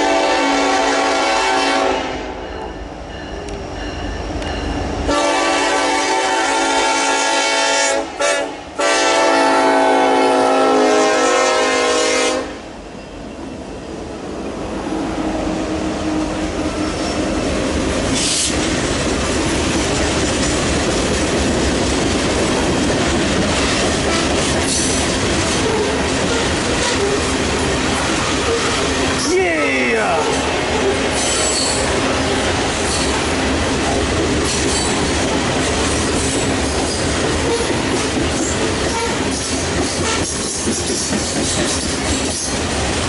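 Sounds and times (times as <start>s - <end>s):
train horn blast: 0.0s - 2.4s, 5.1s - 12.7s, 38.9s - 39.2s
freight train rumble: 0.0s - 43.0s.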